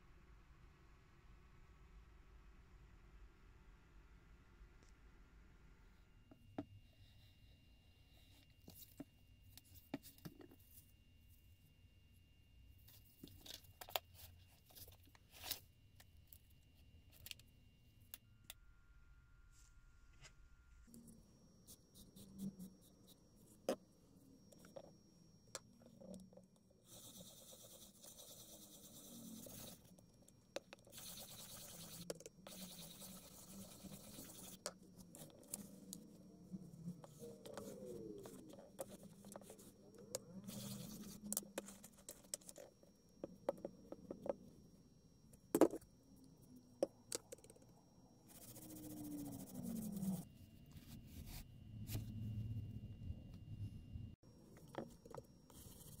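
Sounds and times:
brush scrubbing leather: 30.9 - 34.6.

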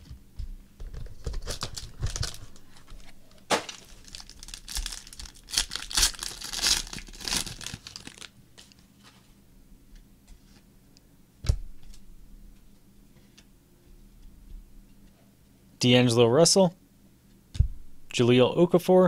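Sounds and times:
foil wrapper ripping and crinkling: 1.3 - 8.8.

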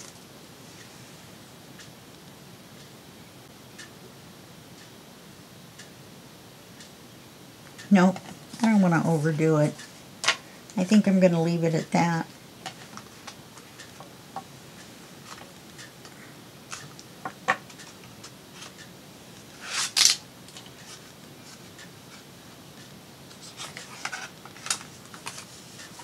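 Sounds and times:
paper pages flipping: 23.5 - 25.6.

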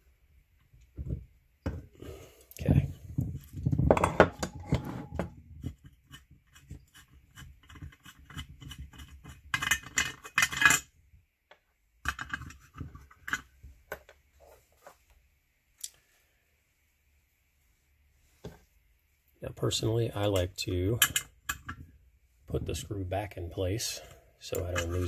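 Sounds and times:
light metallic clicks and scrapes: 23.9 - 25.0.

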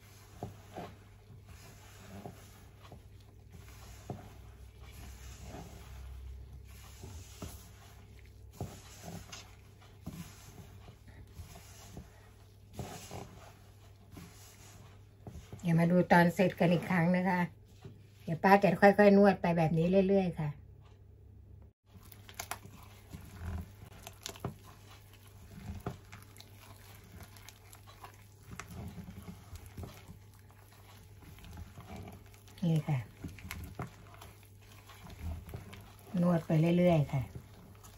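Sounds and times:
hand kneading dough in a bowl: 0.0 - 21.0, 21.8 - 37.9.

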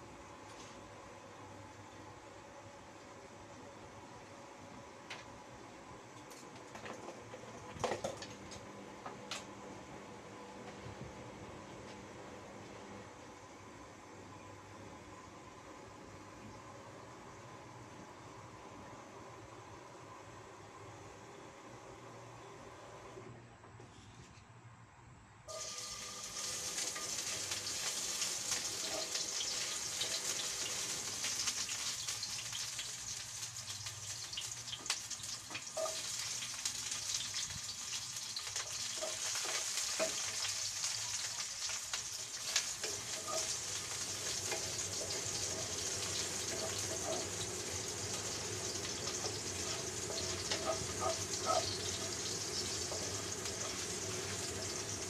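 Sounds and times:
garlic sizzling in oil: 25.5 - 55.0.

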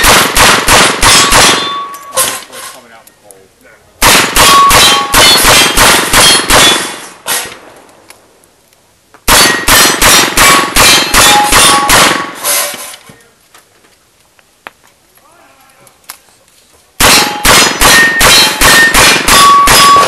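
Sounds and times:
rapid revolver shots: 0.0 - 1.9, 4.0 - 7.6, 9.3 - 12.4, 17.0 - 20.0
steel targets ringing: 1.0 - 2.4, 4.4 - 7.0, 9.4 - 12.9, 17.1 - 20.0.

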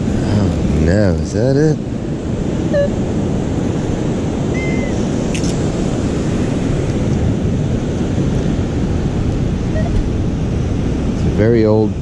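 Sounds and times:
heavy surf: 0.0 - 12.0
wind buffeting microphone: 0.0 - 12.0
short high beep: 2.7 - 2.9.

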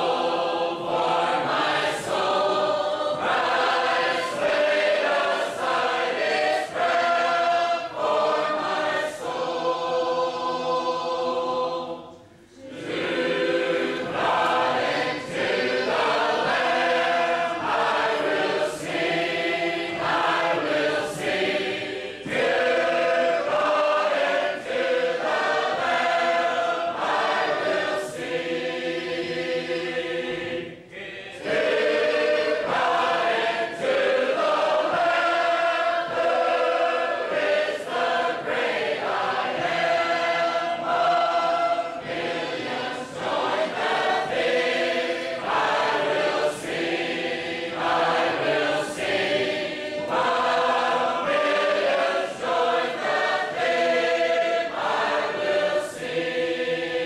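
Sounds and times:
choir singing unaccompanied harmony: 0.0 - 57.0.

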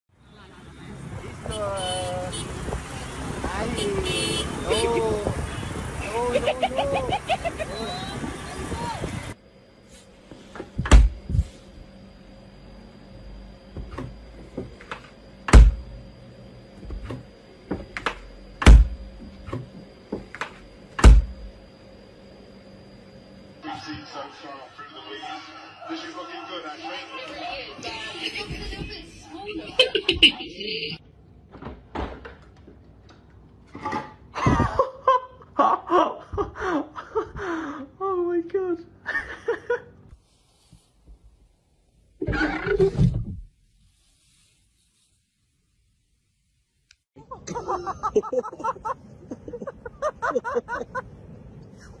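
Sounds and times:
person laughing hard: 6.0 - 8.2, 29.7 - 30.5, 34.4 - 37.6, 47.2 - 51.1
loud deep thunks: 10.8 - 11.3, 18.6 - 19.1, 21.0 - 21.4.

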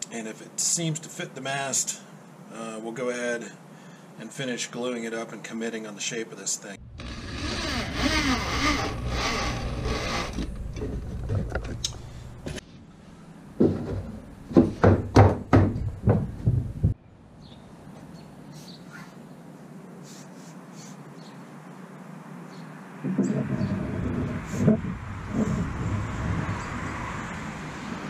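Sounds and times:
low steady hum: 6.8 - 14.4
cordless drill driving screws: 7.0 - 10.6
knocks and thuds on wood: 13.6 - 17.0, 23.0 - 25.5.

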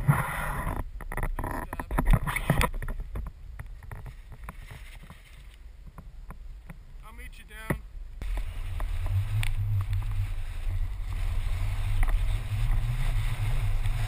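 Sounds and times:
skis swishing through snow: 8.2 - 14.0.

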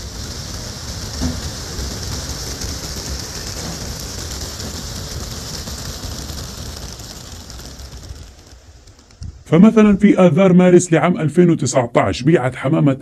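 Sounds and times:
pigeon wings flapping: 0.0 - 10.2.

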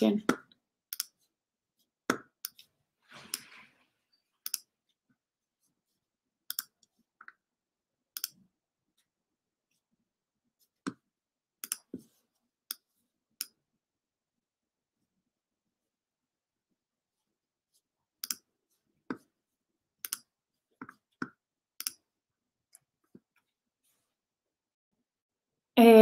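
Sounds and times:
computer mouse clicks: 0.9 - 1.2, 4.4 - 4.7, 6.5 - 7.4, 8.1 - 8.4, 11.6 - 11.9, 18.2 - 18.5, 20.0 - 22.0.

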